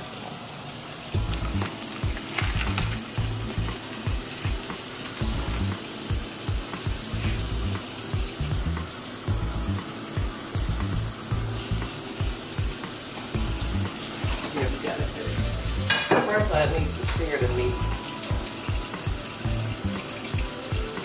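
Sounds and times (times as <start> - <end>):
steady high hiss: 0.0 - 21.0
music with pulsing bass line: 1.2 - 12.8, 13.4 - 14.4, 15.3 - 21.0.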